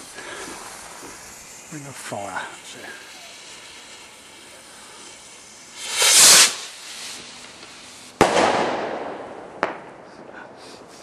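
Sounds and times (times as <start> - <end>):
firework rocket hiss: 0.0 - 11.0
firework bang with echo: 5.8 - 7.4, 8.2 - 10.6.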